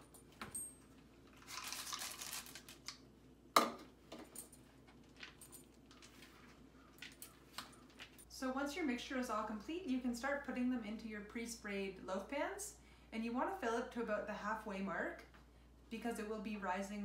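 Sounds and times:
chocolate chips rattling into bowl: 1.4 - 2.8.

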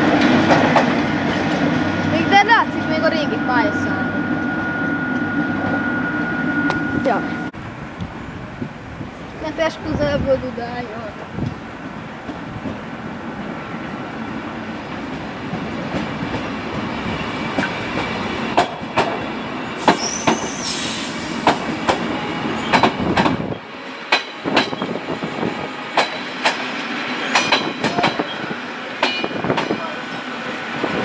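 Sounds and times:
train low rumble: 0.0 - 31.0
train wheels clacking over joints: 17.5 - 20.7, 21.4 - 23.4, 26.0 - 28.4
wheel squeal: 19.6 - 21.1.

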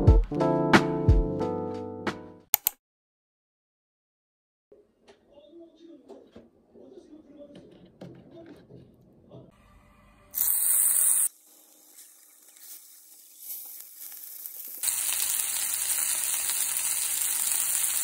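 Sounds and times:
skewers sizzling in a skillet: 10.4 - 18.0.

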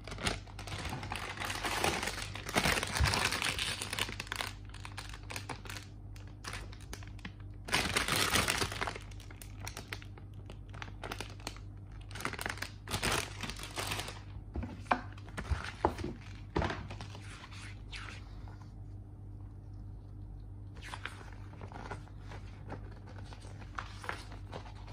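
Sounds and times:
plastic bags crinkling: 0.0 - 14.4.

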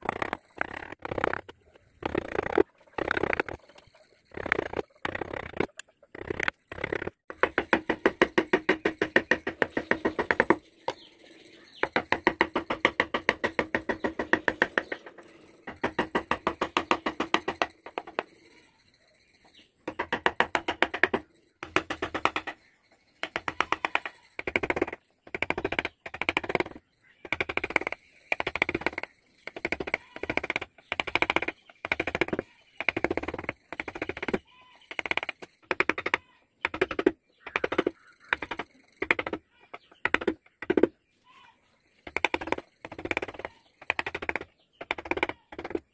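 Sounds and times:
chisel tapping into wood: 19.9 - 22.6.

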